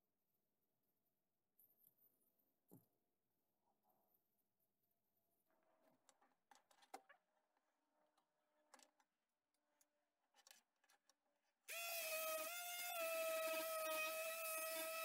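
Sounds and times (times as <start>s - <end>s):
power tool motor whine: 11.7s - 15.0s.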